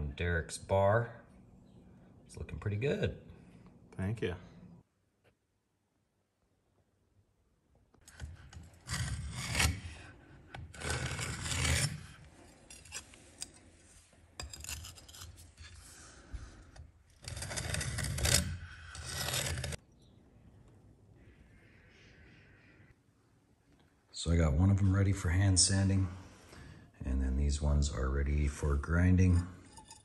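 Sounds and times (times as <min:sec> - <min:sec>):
steel scriber scraping metal: 0:08.1 - 0:10.0, 0:10.7 - 0:13.7, 0:14.4 - 0:16.0, 0:17.2 - 0:19.8, 0:29.2 - 0:30.0
gauge sliding on stone plate: 0:16.6 - 0:19.8, 0:29.6 - 0:30.0.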